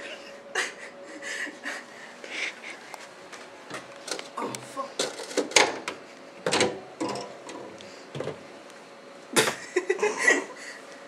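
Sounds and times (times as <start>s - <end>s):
wire shelves clinking and clattering: 5.0s - 5.9s, 6.5s - 8.4s.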